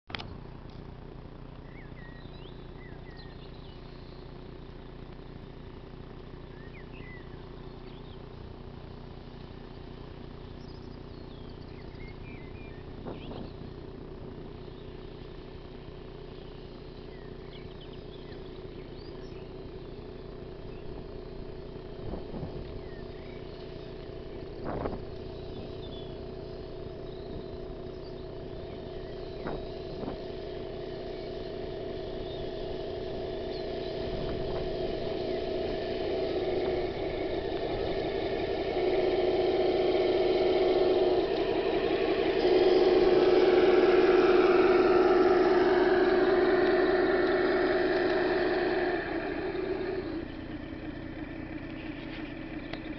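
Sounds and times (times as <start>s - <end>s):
model tank drive whine: 0.1s - 52.9s.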